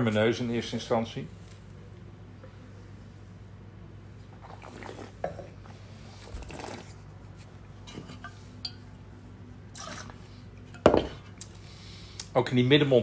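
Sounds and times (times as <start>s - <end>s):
person sipping and swallowing: 4.3s - 7.0s
glass set down on table: 10.8s - 11.2s.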